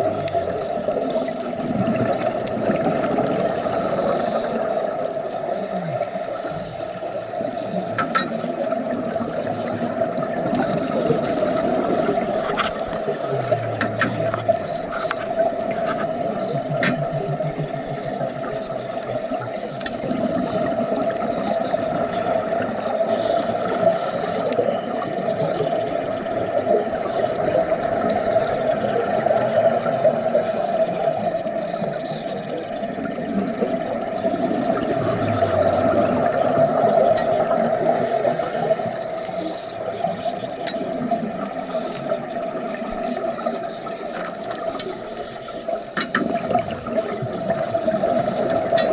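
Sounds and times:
scuba regulators and bubbles gurgling: 0.0 - 48.9
sharp underwater clicks: 7.2 - 26.5, 35.9 - 37.9, 38.6 - 48.9.

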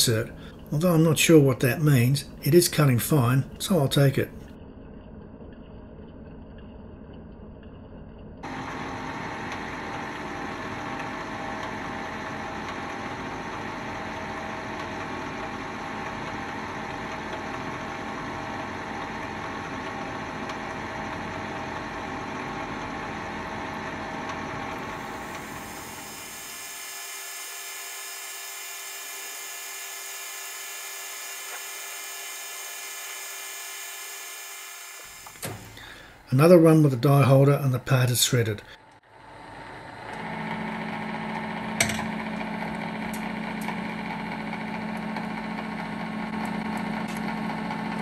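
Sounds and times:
metal lathe whining: 8.5 - 35.9.

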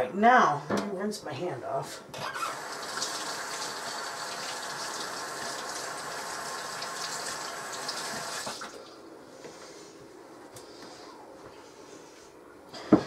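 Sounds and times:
kitchen tap running: 2.2 - 8.8.

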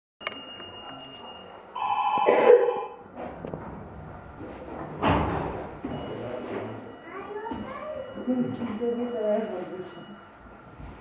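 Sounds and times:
electric signal bell ringing: 0.2 - 3.0, 7.0 - 10.2
noisy clunk: 4.7 - 6.7.

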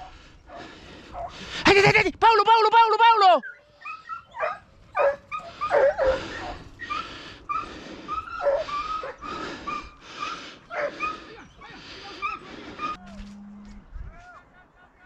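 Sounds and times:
hounds yelping and baying: 0.0 - 1.6, 3.4 - 13.3.

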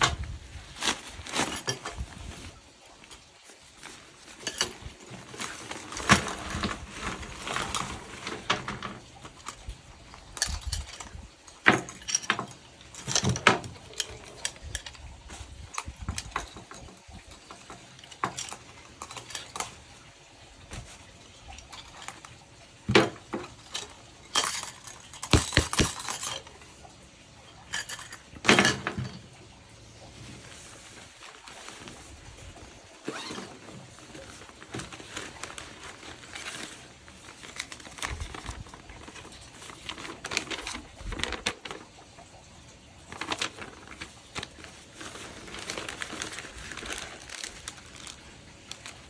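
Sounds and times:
fabric bag rustling: 0.0 - 11.2, 30.2 - 41.9, 43.0 - 49.0
metal rings clinking and jangling: 8.8 - 20.0, 21.3 - 26.7, 27.4 - 29.2.

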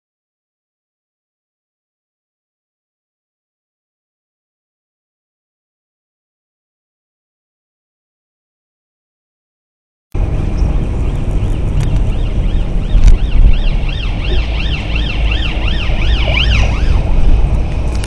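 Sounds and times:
road and wind rumble: 10.2 - 18.0
emergency siren yelping: 11.1 - 18.0.

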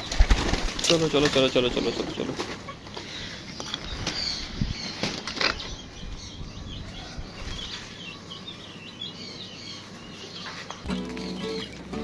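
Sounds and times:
flapping wings: 0.0 - 2.6
small birds chirping: 0.0 - 12.0.

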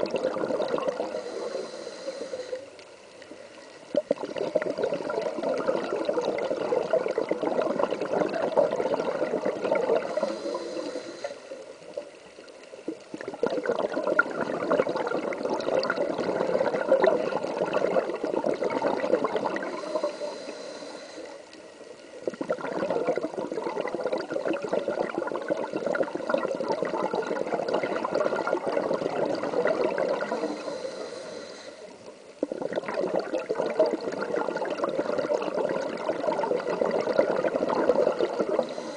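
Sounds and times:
exhaled bubbles underwater: 0.0 - 2.8, 3.8 - 38.9
regulator inhale hiss: 1.0 - 3.9, 10.0 - 12.2, 19.6 - 22.3, 30.1 - 32.4, 38.4 - 38.9.

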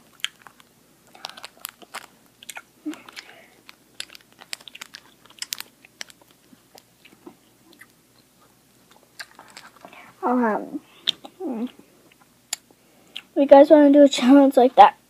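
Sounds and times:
mouth chewing candy: 0.0 - 9.9.

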